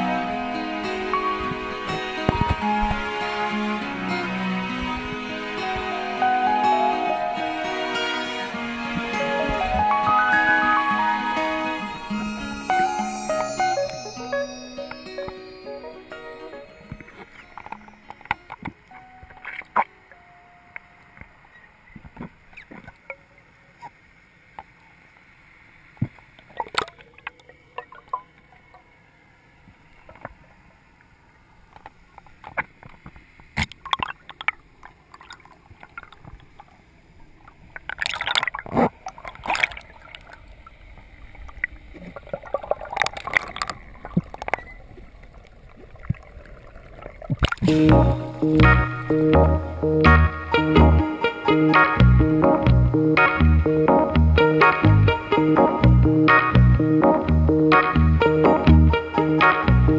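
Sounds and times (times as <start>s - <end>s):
low rush of water: 0.0s - 56.6s
bubbling: 41.6s - 48.2s.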